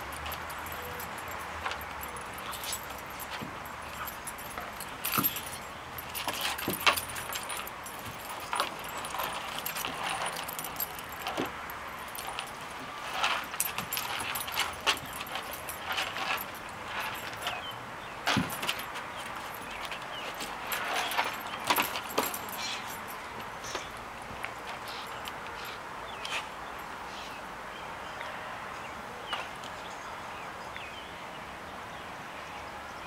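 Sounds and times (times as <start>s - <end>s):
dogs bumping knocks: 0.0s - 17.5s, 18.2s - 22.6s
paws scuffling on wooden boards: 0.0s - 26.6s
collar chain and tags jangling: 0.0s - 27.3s.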